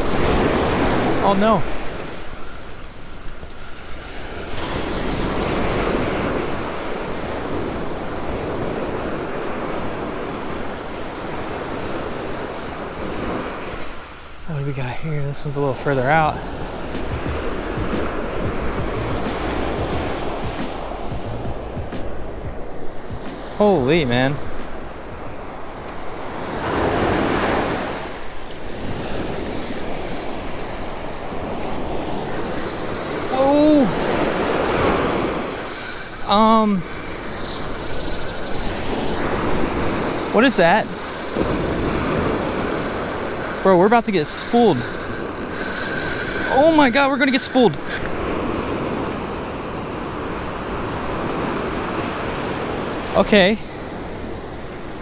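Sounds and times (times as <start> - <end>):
ocean surf washing on beach: 0.0 - 55.0
wind on microphone: 16.2 - 23.6.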